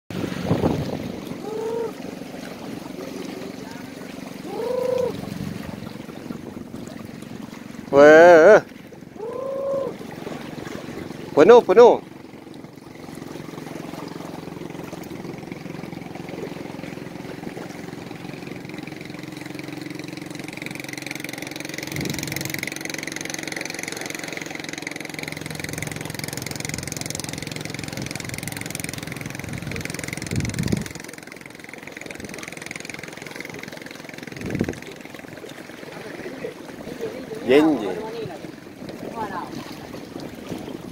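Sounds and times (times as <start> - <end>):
small engine humming: 0.2 - 6.8, 12.1 - 35.9.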